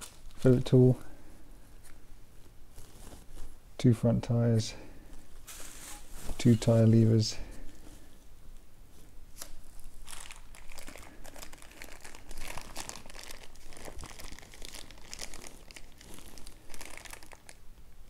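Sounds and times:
plastic bags crinkling: 9.6 - 17.7.

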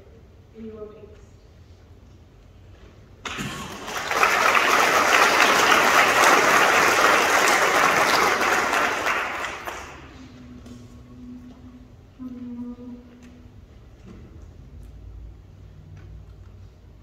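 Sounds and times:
audience applauding: 3.2 - 10.2.

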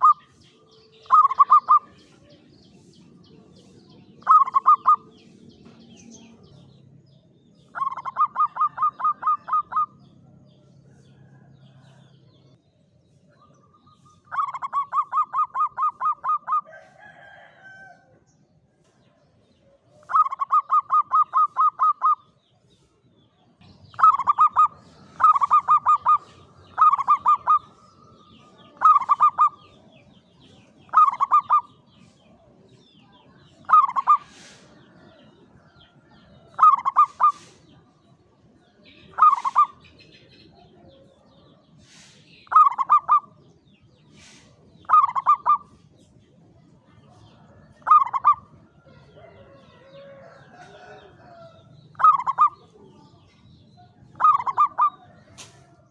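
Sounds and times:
dove cooing: 0.0 - 0.3, 0.9 - 2.0, 4.2 - 5.2, 7.7 - 10.0, 14.1 - 16.8, 19.8 - 22.3, 23.9 - 30.0, 30.8 - 31.8, 33.6 - 35.8, 36.4 - 37.7, 39.1 - 39.8, 42.0 - 43.4, 44.2 - 45.7, 47.8 - 52.8, 54.1 - 55.5.

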